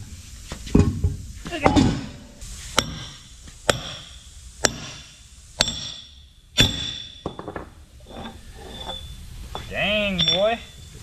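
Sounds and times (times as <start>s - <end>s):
hammer striking metal: 2.8s - 7.6s.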